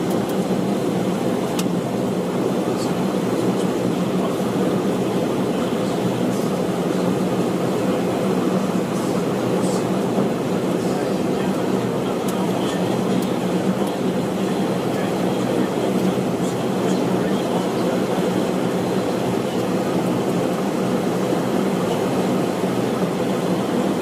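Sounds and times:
aircraft drone and hum: 0:00.0 - 0:24.0.

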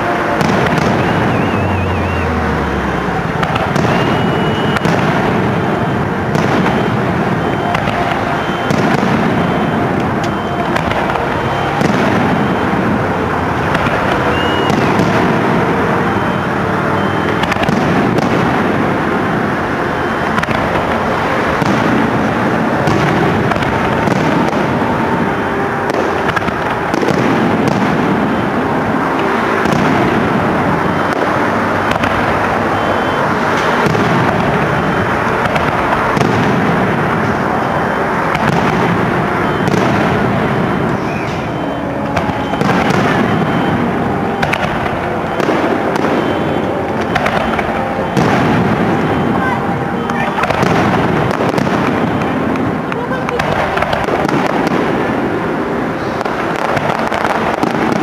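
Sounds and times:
firework shells bursting: 0:03.0 - 0:16.4.

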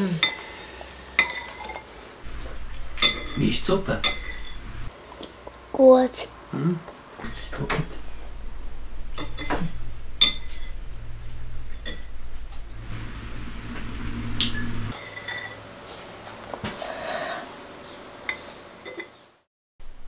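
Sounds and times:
low steady hum: 0:00.0 - 0:04.9, 0:07.2 - 0:15.0
spoons clinking against plates: 0:01.2 - 0:01.9, 0:02.6 - 0:04.6, 0:14.9 - 0:15.6, 0:18.3 - 0:19.2.

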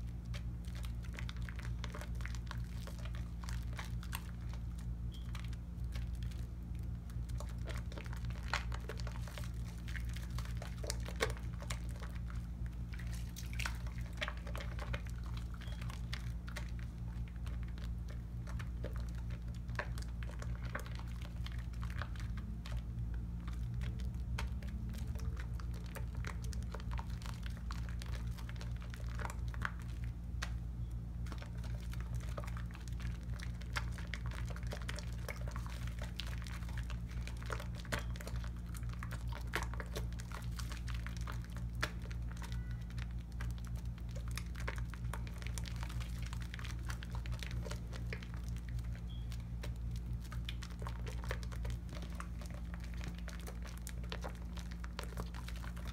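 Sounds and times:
soapy hands squishing lather: 0:00.0 - 0:55.9
steady low hum: 0:00.0 - 0:55.9.

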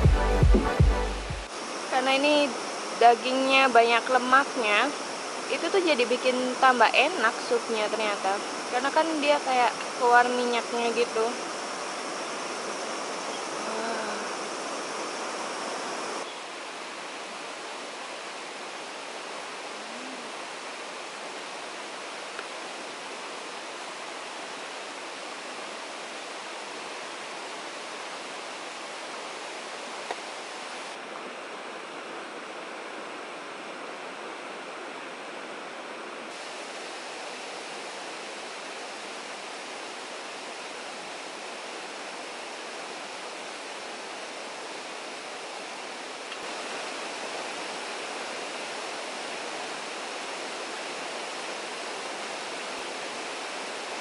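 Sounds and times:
stream water rushing: 0:00.0 - 0:54.0.

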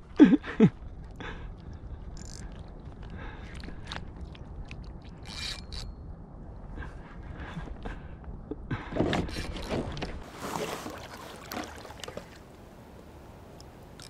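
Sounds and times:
low wind rumble on microphone: 0:00.0 - 0:10.4
knocks and scrapes of fishing rod: 0:08.9 - 0:12.4
water lapping against kayak hull: 0:09.0 - 0:14.0.

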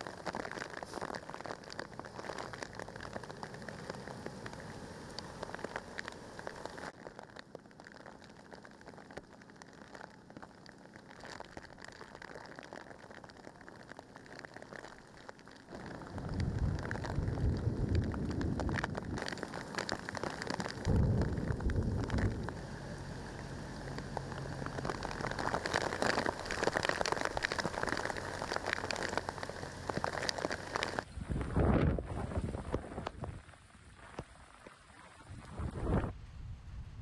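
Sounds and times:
heavy rain splashing on pavement: 0:00.0 - 0:31.1
low rumble: 0:15.7 - 0:33.1.

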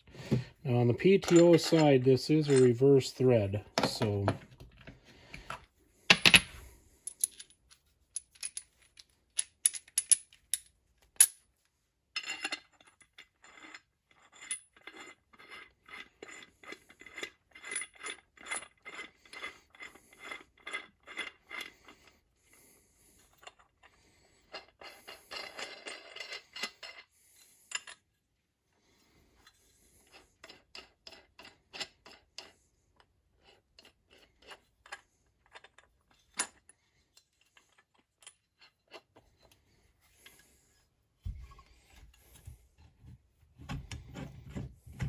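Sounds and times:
metal scrape: 0:01.0 - 0:04.3.

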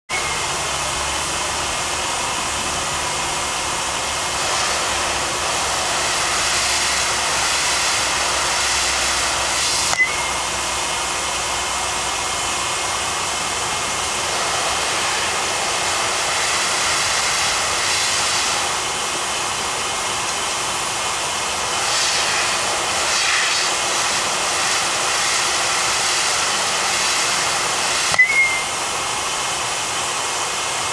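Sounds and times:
blower airy hiss: 0:00.2 - 0:30.9
bat striking ball: 0:28.1 - 0:28.6.

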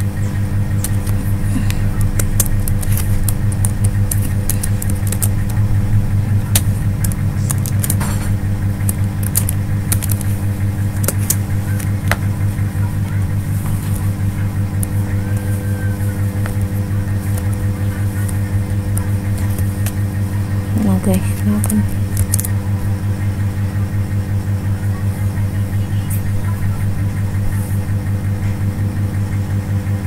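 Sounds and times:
keyboard keys clicking: 0:00.0 - 0:23.0
low hum: 0:00.0 - 0:30.0.

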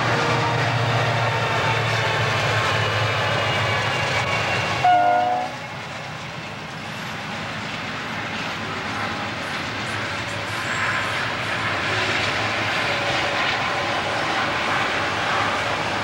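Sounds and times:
diesel locomotive engines droning: 0:00.0 - 0:16.0
train wheel and rail noise: 0:00.0 - 0:16.0
train horn toot: 0:03.4 - 0:05.7.

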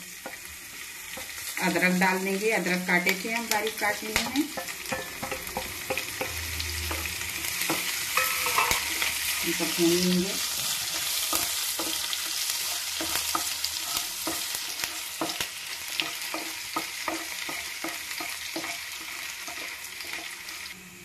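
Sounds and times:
hot oil sizzling: 0:00.0 - 0:21.0
wooden spatula stirring and scraping: 0:06.9 - 0:20.3.

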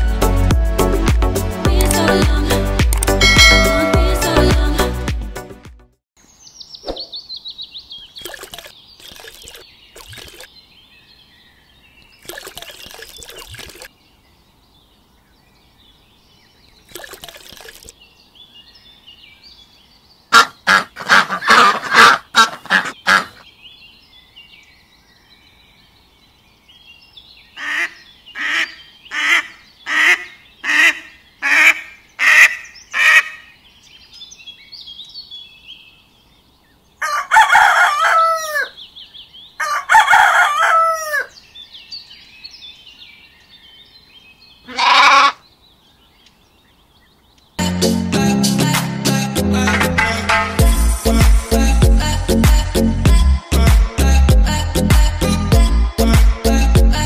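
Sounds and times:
duck quacking: 0:20.3 - 0:23.4, 0:27.6 - 0:33.4.

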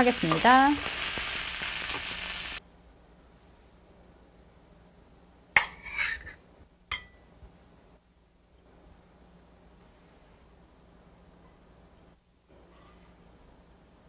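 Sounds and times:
frying sizzle: 0:00.0 - 0:02.6.

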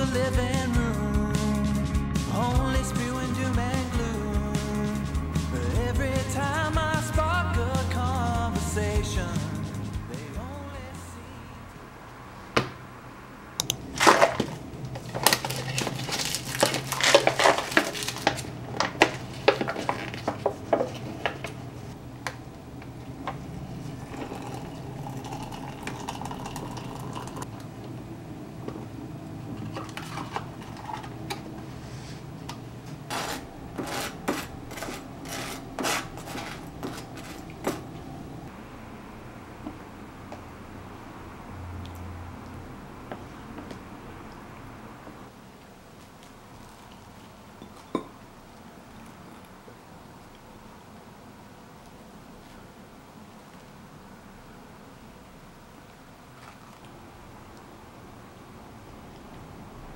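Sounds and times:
low steady hum: 0:00.0 - 0:59.9
wooden spoon stirring: 0:13.9 - 0:22.0, 0:33.1 - 0:38.1
cup being opened: 0:24.0 - 0:27.4.

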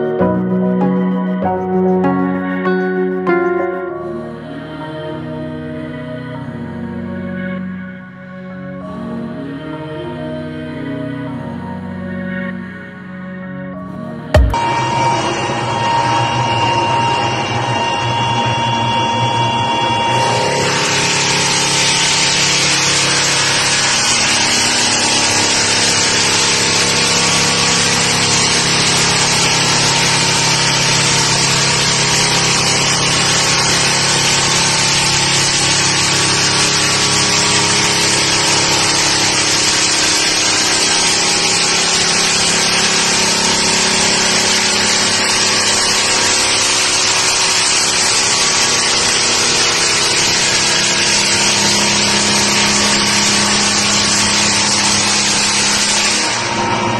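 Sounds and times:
floor sander motor hum: 0:14.4 - 0:56.9
sanding drum hissing on wood: 0:20.8 - 0:56.3.

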